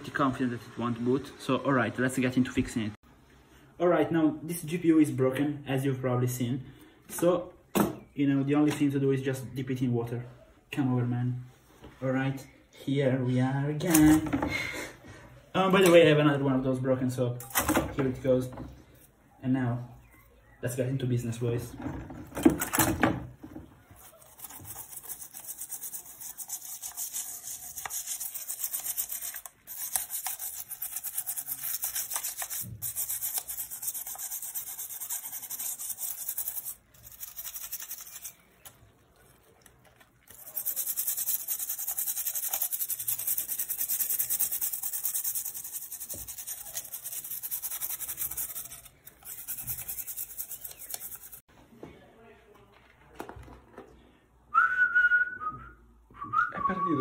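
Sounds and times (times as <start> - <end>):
toothbrush scrubbing in water: 24.0 - 51.5.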